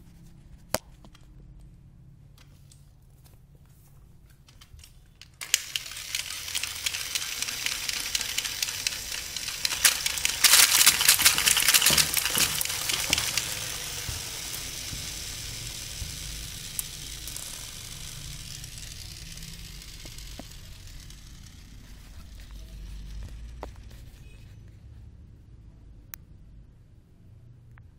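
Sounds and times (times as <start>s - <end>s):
toy launcher firing marbles: 5.4s - 23.4s
marbles clattering on tiled floor: 5.4s - 23.6s.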